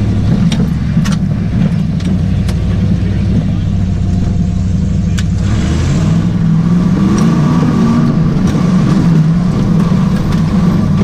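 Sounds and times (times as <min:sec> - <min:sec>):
engine revving inside vehicle: 0:00.0 - 0:11.0.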